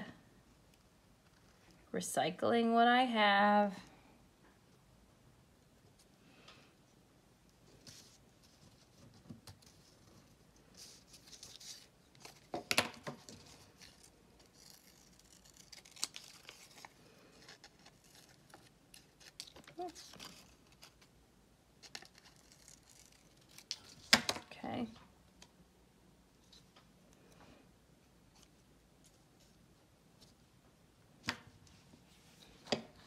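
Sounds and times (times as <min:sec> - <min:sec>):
paper rustling: 0:07.7 - 0:21.1.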